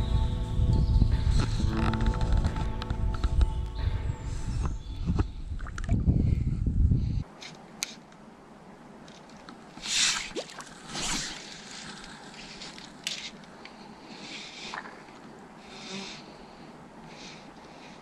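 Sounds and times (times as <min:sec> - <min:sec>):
fly line swishing: 0:09.8 - 0:13.4.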